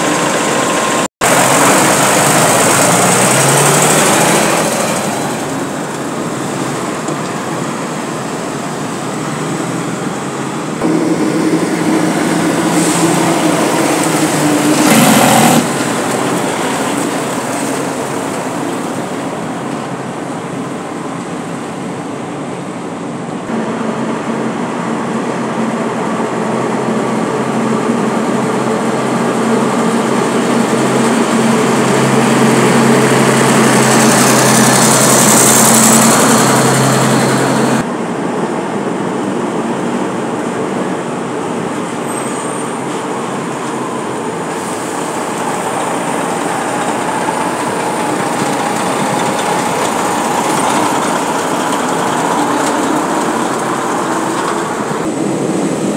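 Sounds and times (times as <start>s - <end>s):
dump trucks rumbling past: 0.0s - 55.9s
hiss: 10.9s - 18.6s, 44.5s - 55.0s.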